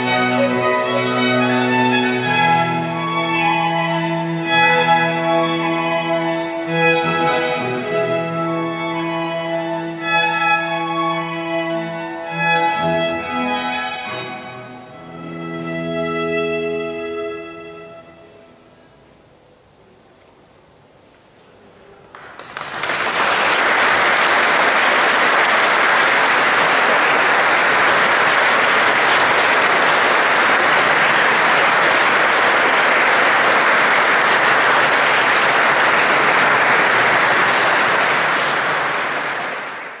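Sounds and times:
audience applause: 0:22.1 - 0:40.0.

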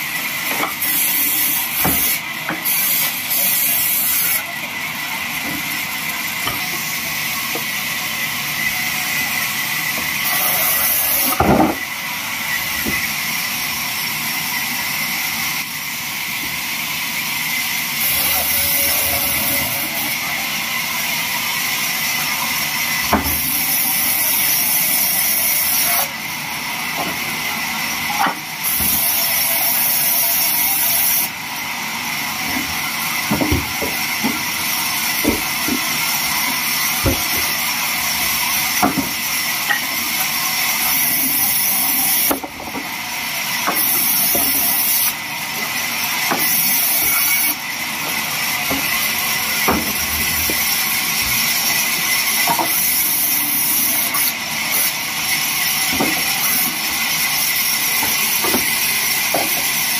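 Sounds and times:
bandsaw blade cutting wood: 0:00.5 - 0:04.5, 0:08.7 - 0:13.1, 0:17.8 - 0:20.7, 0:32.5 - 0:59.9.

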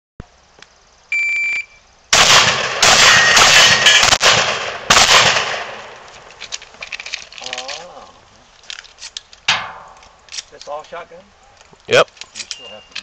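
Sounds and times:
shot timer beep: 0:01.1 - 0:01.8
shotgun blasts: 0:02.1 - 0:06.0.

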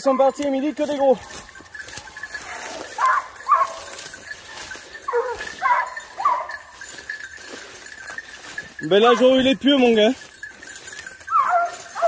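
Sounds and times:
hounds baying: 0:00.0 - 0:12.0.

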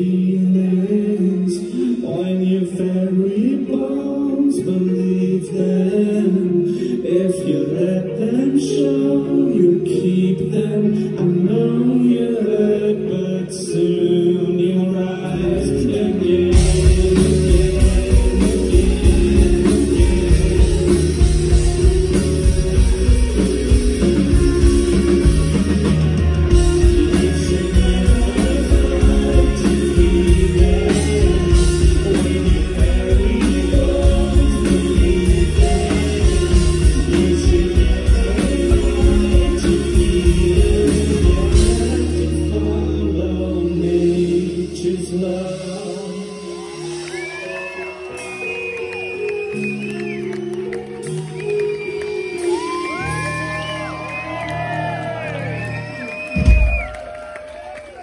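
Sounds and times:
person singing: 0:00.0 - 0:58.0
light band accompaniment: 0:15.0 - 0:58.0.

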